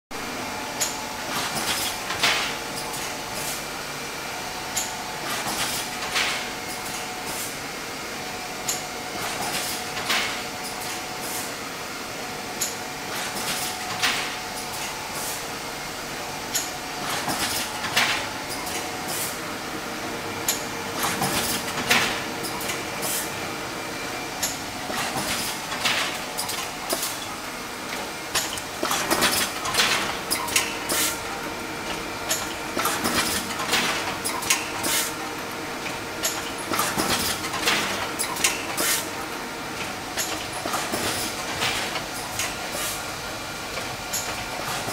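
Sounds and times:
sharp machine clacks: 31.9 - 35.1.

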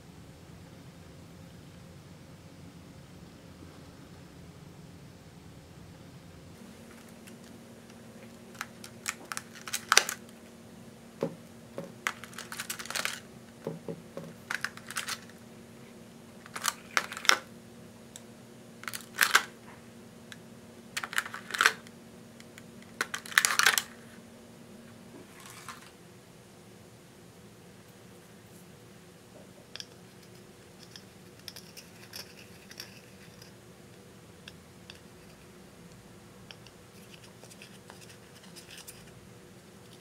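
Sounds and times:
faint steady hum: 0.0 - 40.0
plastic tray clattering: 11.2 - 15.3.

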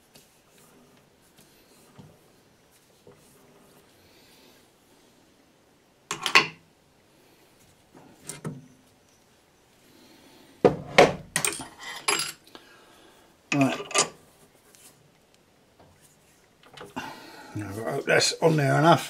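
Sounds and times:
metal tools clattering and clanking: 11.4 - 12.4, 13.5 - 14.2.

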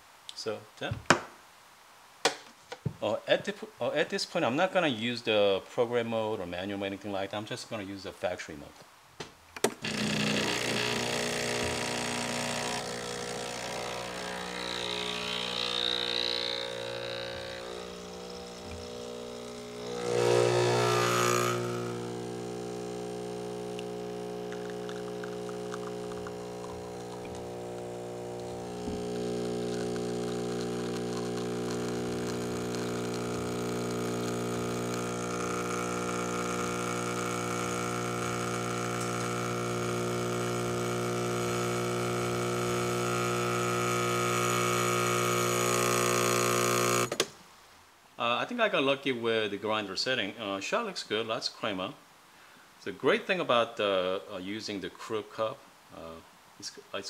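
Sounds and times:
espresso machine pump humming: 9.8 - 47.1.

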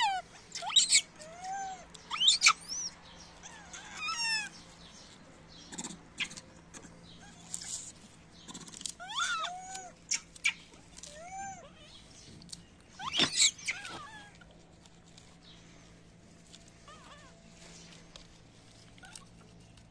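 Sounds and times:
baby monkeys cooing and squeaking: 0.0 - 19.9
clicks and rustles: 6.1 - 19.9.

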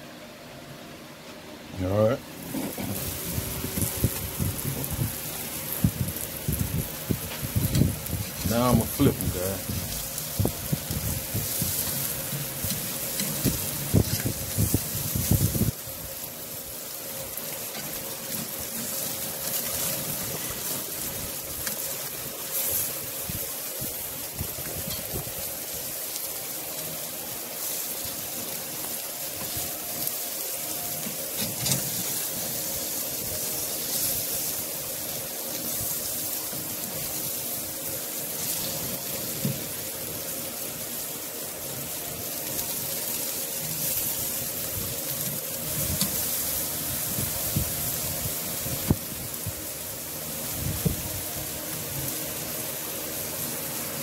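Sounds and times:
fish sizzling on a grill: 1.8 - 54.0.

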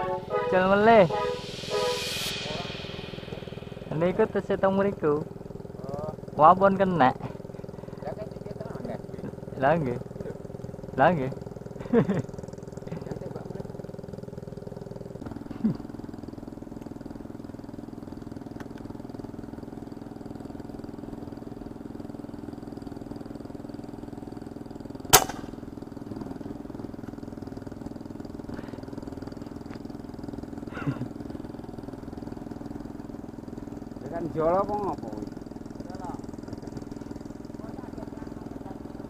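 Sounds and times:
small petrol engine running: 2.3 - 39.0
sharp crack: 25.1 - 25.6.

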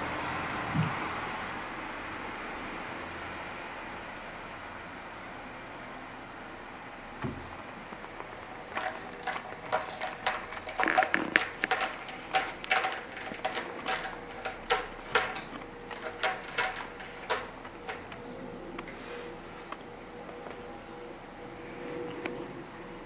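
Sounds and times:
cat claws scratching: 8.6 - 18.2.

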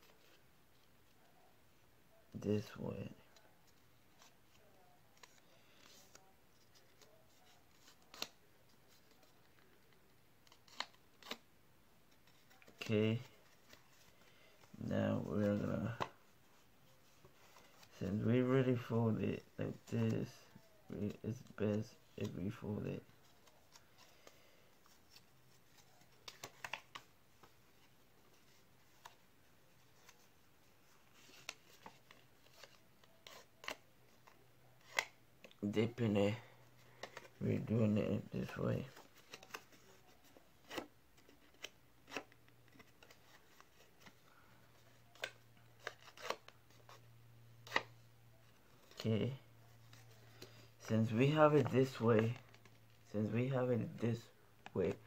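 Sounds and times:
paper rustling and creasing: 36.7 - 55.0.

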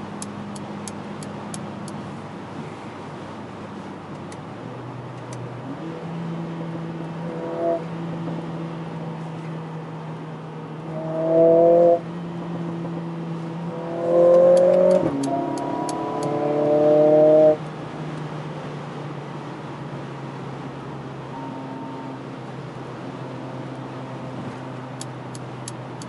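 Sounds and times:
road noise: 0.0 - 26.0
car engine accelerating: 4.1 - 26.0
faint high ticks: 14.3 - 16.3.

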